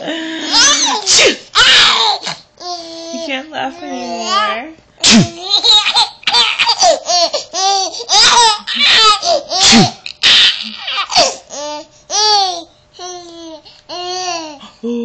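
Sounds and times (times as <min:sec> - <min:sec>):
baby laughing: 0:00.5 - 0:03.3, 0:04.0 - 0:12.6.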